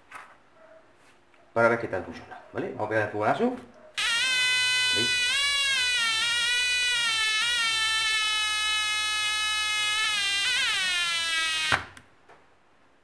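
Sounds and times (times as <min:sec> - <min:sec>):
alarm buzzing tone: 0:04.0 - 0:12.0.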